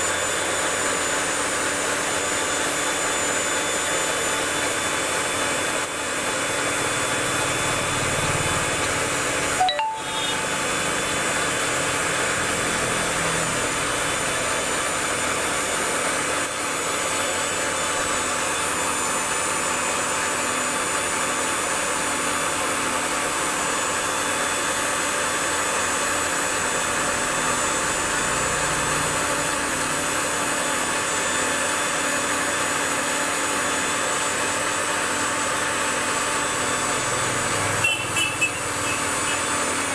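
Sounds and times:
constant high tones: 9.6 - 10.6.

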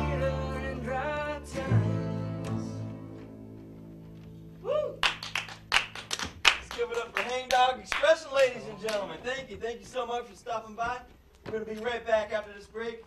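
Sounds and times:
people clapping: 4.8 - 9.4.

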